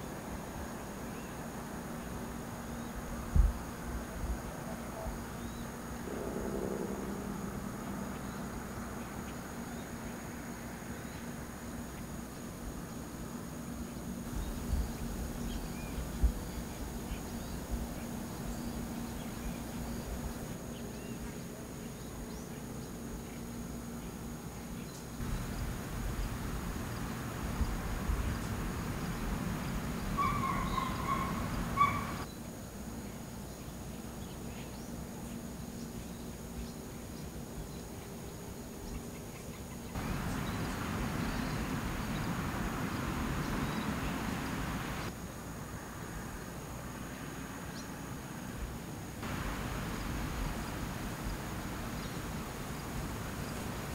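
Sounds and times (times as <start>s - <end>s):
faint low hum: 0.0s - 39.0s, 39.8s - 47.9s, 49.2s - 53.9s
noisy outdoor background: 0.0s - 53.9s
bird call: 25.2s - 32.3s, 40.0s - 45.1s.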